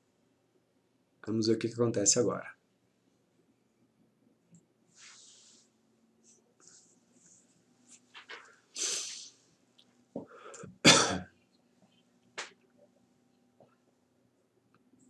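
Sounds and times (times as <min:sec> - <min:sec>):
noisy breath: 0:08.4 - 0:09.4, 0:10.2 - 0:10.8
person sneezing: 0:08.8 - 0:09.3, 0:10.6 - 0:11.2.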